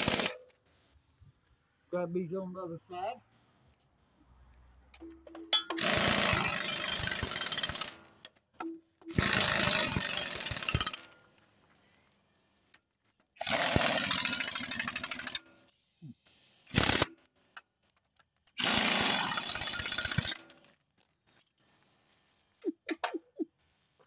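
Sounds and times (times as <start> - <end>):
impact wrench hammering: 5.0 - 8.0, 8.6 - 11.0.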